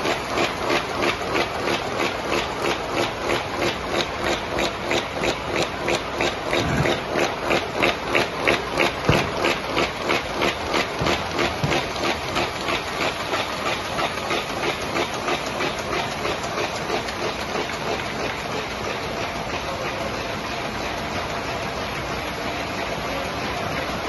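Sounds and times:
machine hiss and hum: 0.0 - 24.0.

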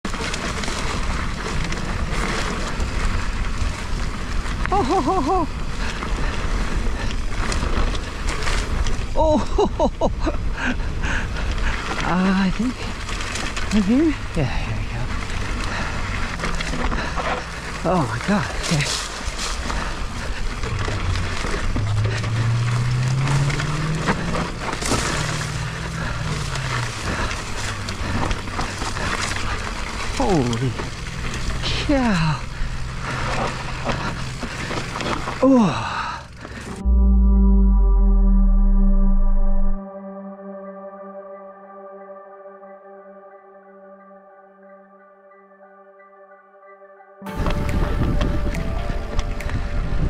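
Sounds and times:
mountain bike rumble on dirt: 0.0 - 37.0, 47.3 - 49.8
low hum: 36.6 - 50.0
wind on microphone: 47.3 - 50.0.

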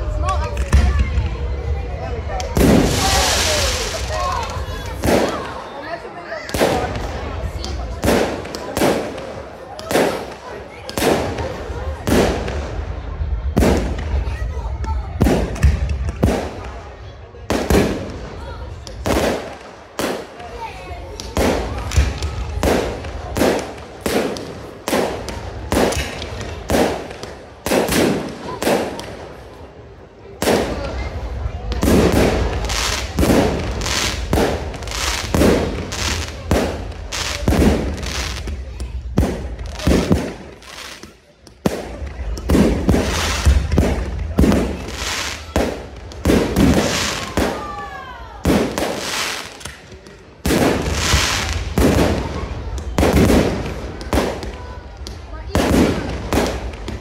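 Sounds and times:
fireworks banging: 0.1 - 5.7, 6.4 - 57.0
fireworks hiss: 2.6 - 5.4, 31.8 - 38.6, 42.5 - 47.6.

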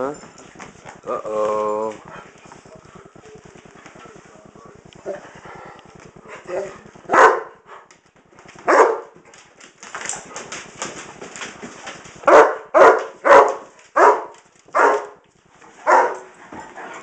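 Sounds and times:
dog barking: 7.1 - 7.6, 8.7 - 9.2, 12.2 - 15.2, 15.8 - 16.3.

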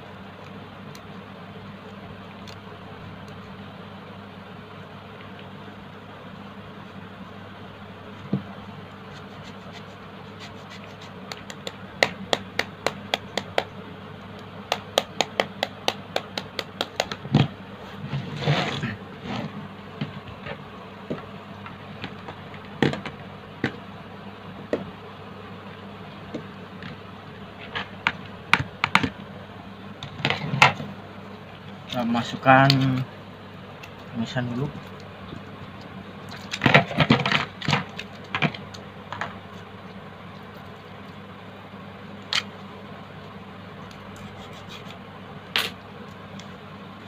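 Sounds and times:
grater scrape: 18.0 - 19.5.

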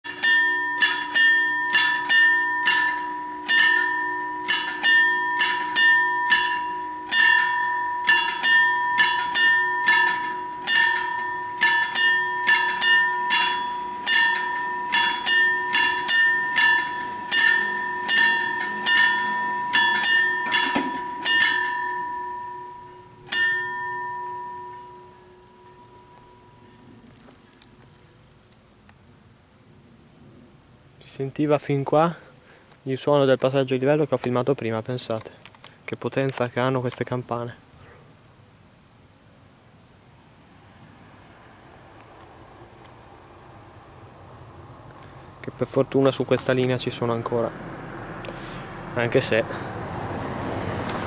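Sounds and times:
level-crossing warning bell: 0.1 - 27.4, 43.8 - 51.0.

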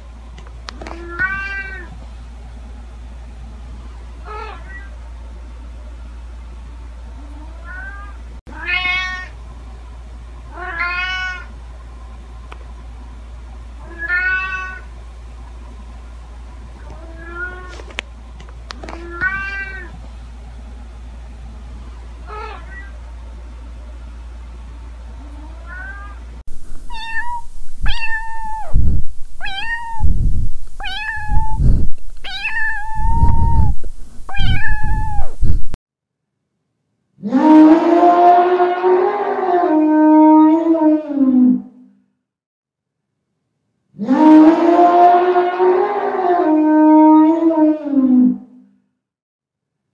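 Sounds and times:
kitten meowing: 7.7 - 9.3, 10.6 - 11.5, 13.9 - 14.8, 19.0 - 19.9, 26.8 - 28.8, 29.4 - 30.2, 30.8 - 35.5
low rumbling noise: 26.2 - 35.8.

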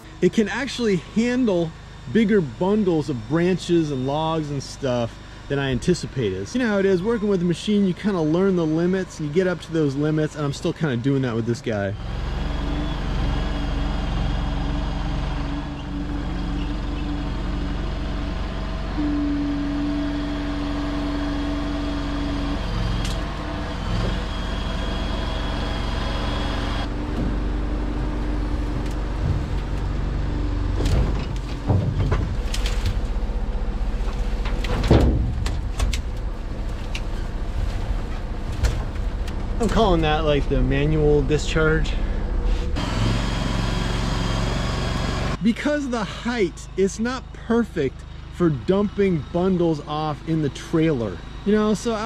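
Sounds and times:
skid steer engine running under load: 0.0 - 52.0
branches knocking and crackling: 28.0 - 39.8.

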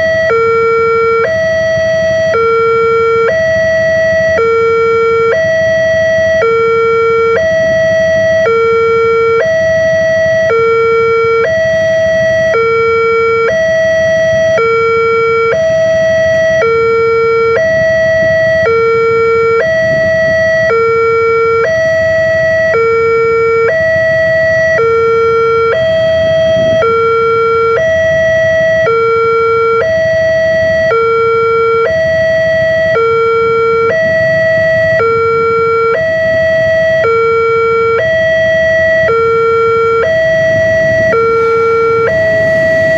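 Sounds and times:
two-tone level crossing alarm: 0.0 - 42.9
low rumble: 39.8 - 42.9.

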